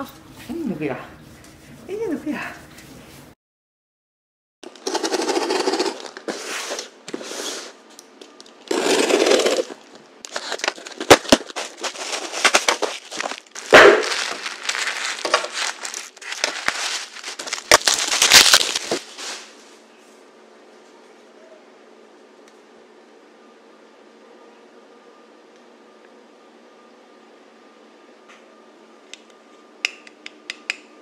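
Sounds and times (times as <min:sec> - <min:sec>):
box cutter cutting packing tape: 0:04.7 - 0:06.9, 0:08.7 - 0:19.0
packaging rustling and crinkling: 0:08.2 - 0:19.6.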